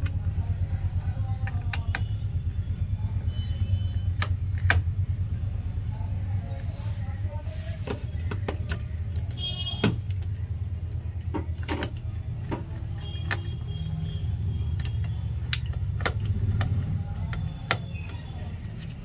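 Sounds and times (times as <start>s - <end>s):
metal clicks and taps: 14.6s - 18.8s.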